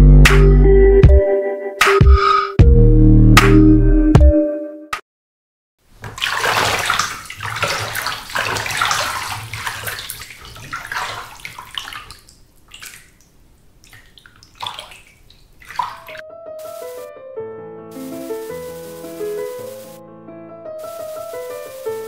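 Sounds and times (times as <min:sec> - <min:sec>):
water sloshing and splashing: 0:05.9 - 0:17.0
piano melody: 0:16.0 - 0:22.0.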